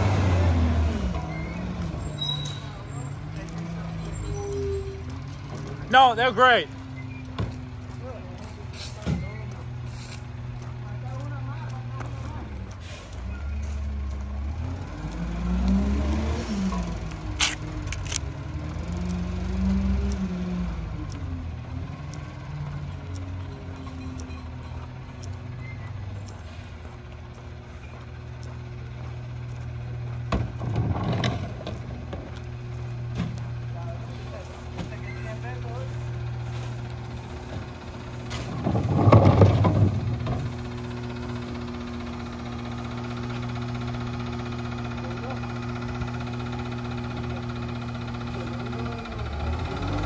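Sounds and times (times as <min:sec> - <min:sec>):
garbage truck engine running: 0:00.0 - 0:50.0
trash crashing into truck hopper: 0:38.4 - 0:40.3.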